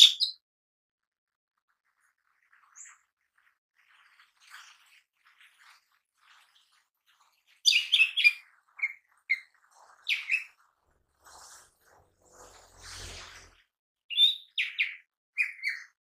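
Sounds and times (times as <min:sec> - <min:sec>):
bird chirping: 0:00.0 - 0:00.4, 0:02.4 - 0:10.7, 0:14.1 - 0:16.0.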